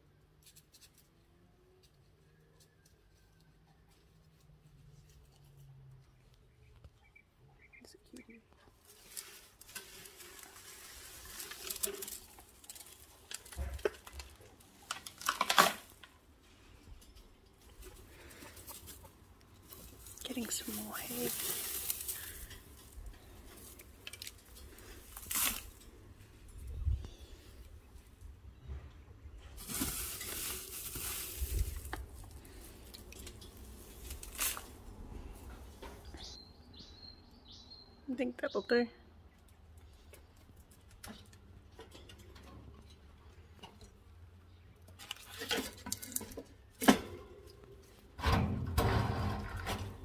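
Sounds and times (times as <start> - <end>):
straw rustling and crackling: 1.8 - 36.8, 44.7 - 48.2.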